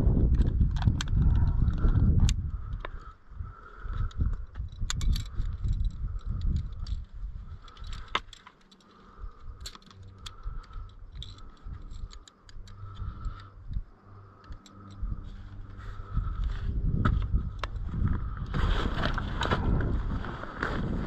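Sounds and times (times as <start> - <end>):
low rumble: 0.0 - 8.2, 9.0 - 21.0
carabiners clinking: 3.8 - 16.2.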